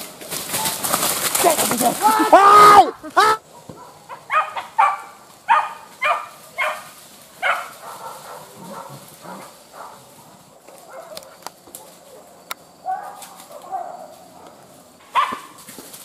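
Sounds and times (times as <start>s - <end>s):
dogs barking: 3.2s - 15.6s.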